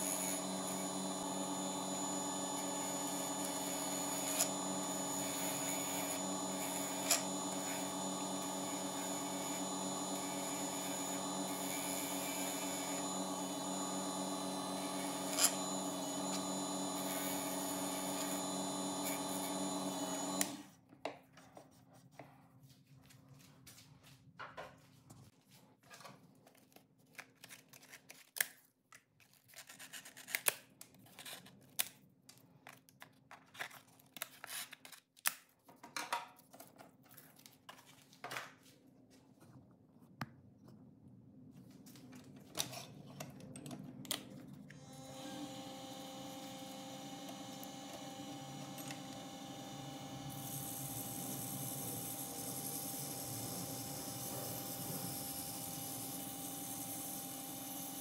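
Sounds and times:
turning tool cutting wood: 0:00.0 - 0:20.6, 0:44.8 - 0:58.0
wood lathe running: 0:00.0 - 0:20.6, 0:44.8 - 0:58.0.

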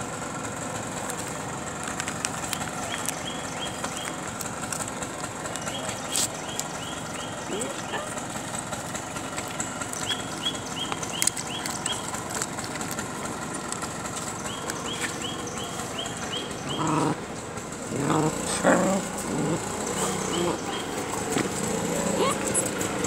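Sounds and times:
dogs whining: 0:05.9 - 0:08.3, 0:14.6 - 0:17.3, 0:17.9 - 0:23.0.

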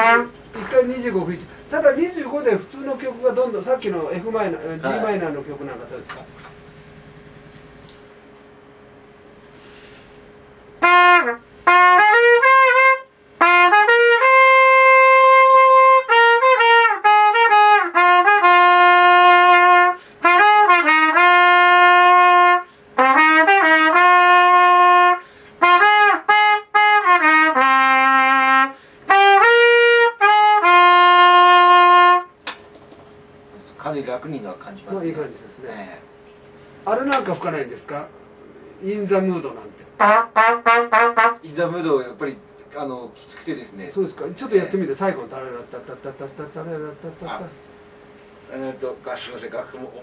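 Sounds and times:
solo trumpet playing: 0:00.0 - 0:00.7, 0:10.8 - 0:32.4, 0:40.0 - 0:41.5.

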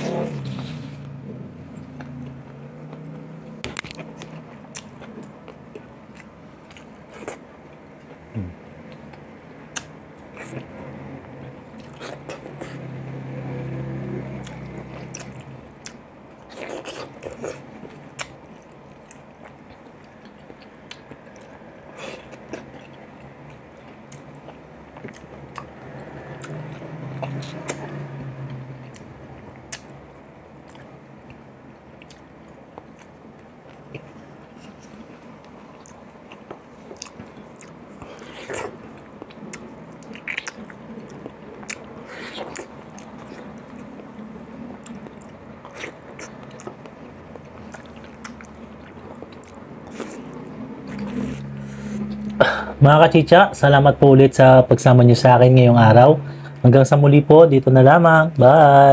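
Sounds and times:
wet biting and chewing: 0:14.4 - 0:30.0, 0:32.0 - 0:44.2, 0:44.8 - 0:52.4.

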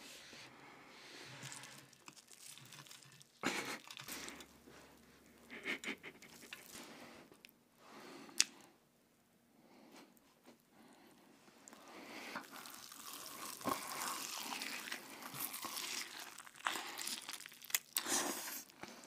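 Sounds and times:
shredded cabbage rustling: 0:01.3 - 0:04.3, 0:12.5 - 0:18.6
fried breading crackling: 0:01.4 - 0:04.1, 0:12.4 - 0:18.6.

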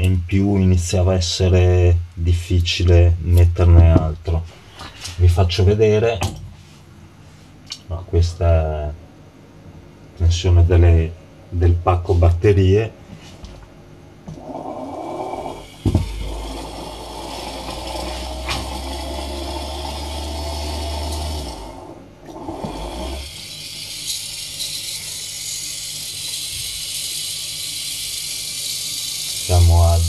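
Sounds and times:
electric motor whirring: 0:14.3 - 0:30.0.

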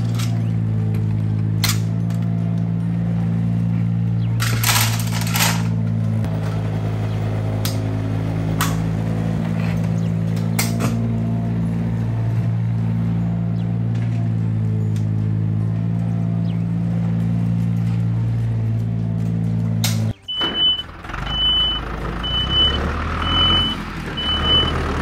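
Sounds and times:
tractor engine hum: 0:00.0 - 0:25.0
plastic toy stones clattering: 0:04.4 - 0:05.8.

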